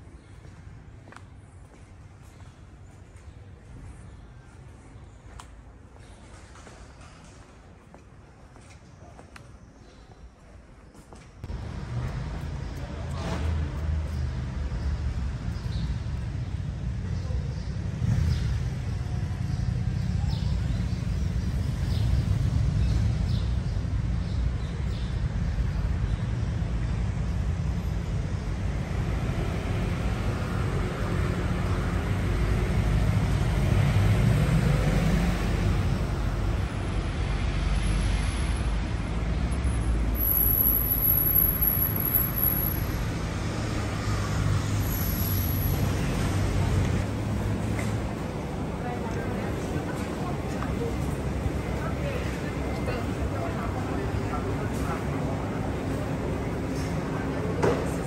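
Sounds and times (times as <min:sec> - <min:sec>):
city street traffic rumbling: 0:00.0 - 0:58.0
vehicle passing by: 0:11.5 - 0:23.4, 0:28.4 - 0:58.0.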